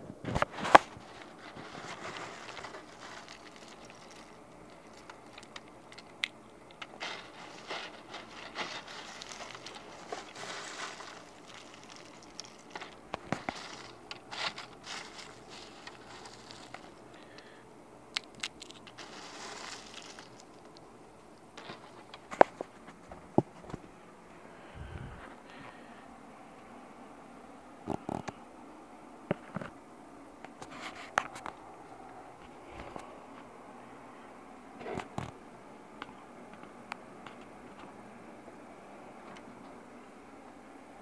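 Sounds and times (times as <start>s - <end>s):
scraping at wire-mesh cage: 0.4s - 17.6s, 18.6s - 20.9s.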